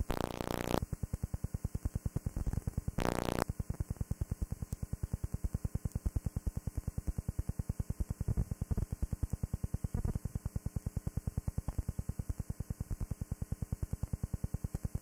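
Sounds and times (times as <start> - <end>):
rapid pulsing buzz: 0.0 - 1.0, 2.2 - 3.5.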